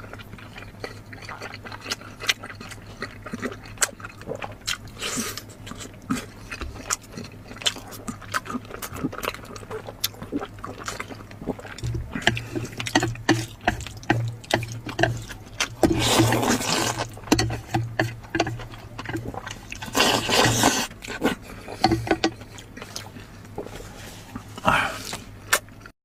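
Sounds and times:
wet chewing and smacking: 0.0s - 25.9s
person slurping noodles: 11.5s - 22.3s.

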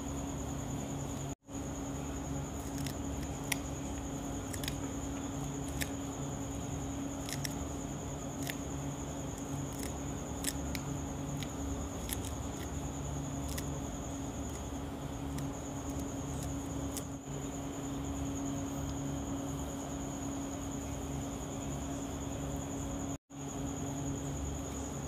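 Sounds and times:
steady hum: 0.0s - 25.0s
knife cutting herbs: 2.4s - 6.0s, 7.1s - 13.8s.

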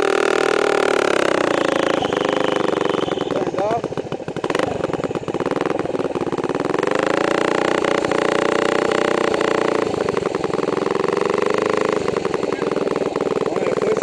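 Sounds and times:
two-stroke engine revving: 0.0s - 14.0s.

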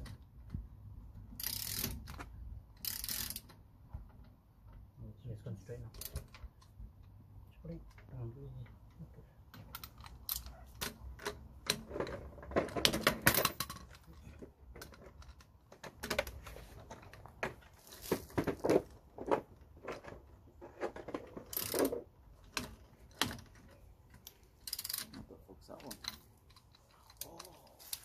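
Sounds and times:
ratchet wrench clicking: 1.4s - 2.1s, 2.8s - 3.6s, 21.5s - 21.9s, 24.2s - 25.1s.

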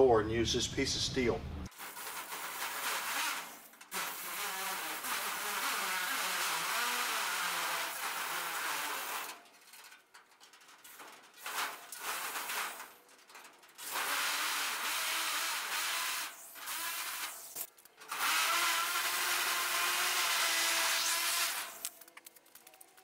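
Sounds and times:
power tool cutting sheet steel: 1.7s - 9.4s, 13.8s - 21.9s.

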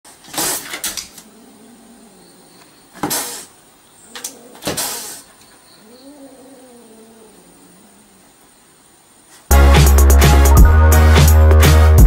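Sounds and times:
cat hissing: 0.2s - 2.3s, 2.9s - 8.2s.

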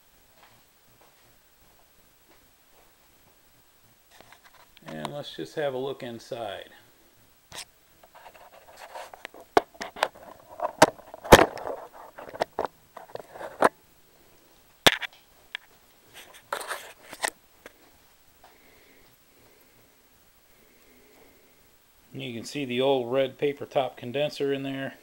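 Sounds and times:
handling clicks knocks and scrapes: 4.1s - 5.1s, 7.5s - 13.8s, 14.9s - 17.8s.

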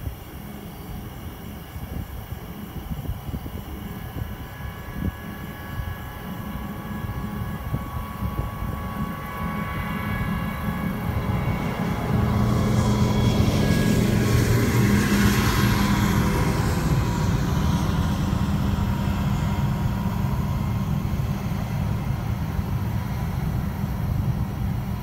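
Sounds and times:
vehicle and road noise: 4.2s - 25.0s.

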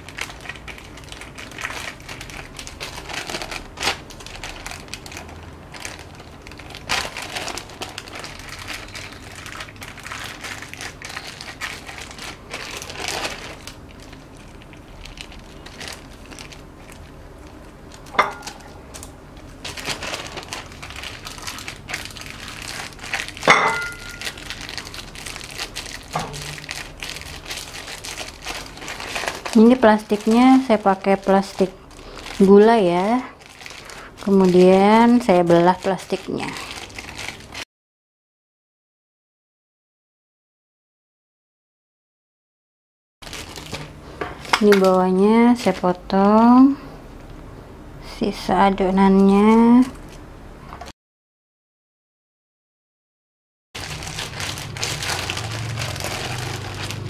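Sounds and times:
plastic sheet crinkling: 0.0s - 37.6s, 43.2s - 46.0s, 53.8s - 57.0s.

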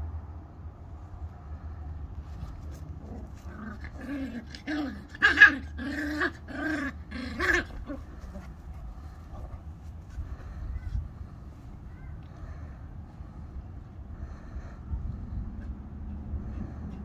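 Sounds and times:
dogs yapping and growling: 2.7s - 9.6s.

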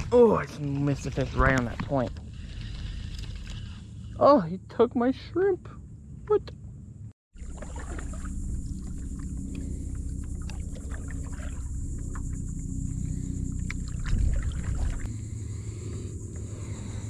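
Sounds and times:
steady low rumble: 5.7s - 17.0s
small splashes: 7.4s - 12.5s, 13.6s - 15.1s
paddle pulling through water: 7.4s - 15.1s.

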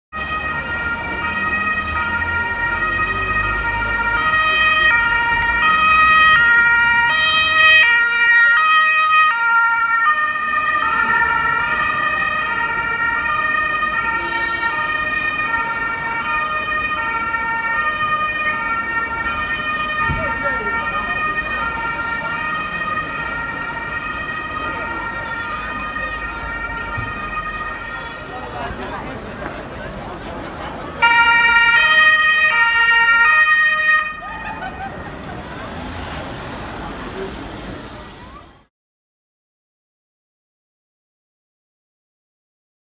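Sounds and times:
ambulance two-tone siren: 0.1s - 28.8s, 30.9s - 38.7s.

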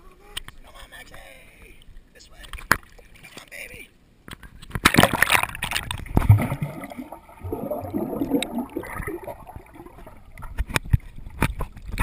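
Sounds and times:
underwater splashes: 4.7s - 12.0s
gurgling bubbles: 4.9s - 11.3s.

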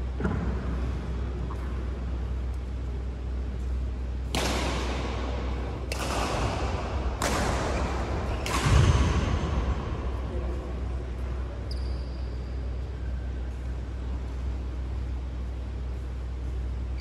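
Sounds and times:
steady low hum: 0.0s - 17.0s
rackets hitting shuttlecock: 3.5s - 11.7s.

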